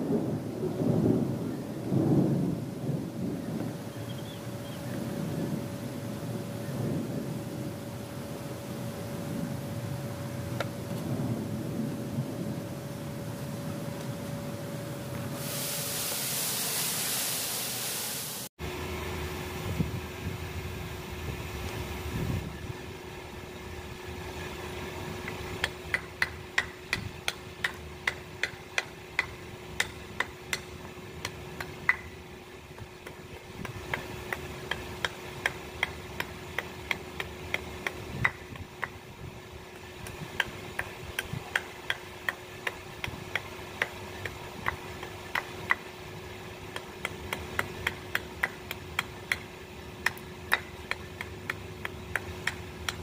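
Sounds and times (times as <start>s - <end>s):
steady low hum: 0.1s - 15.8s, 18.6s - 53.0s
hammer tapping on metal: 25.2s - 32.2s, 32.8s - 39.0s, 40.0s - 45.9s, 46.7s - 53.0s.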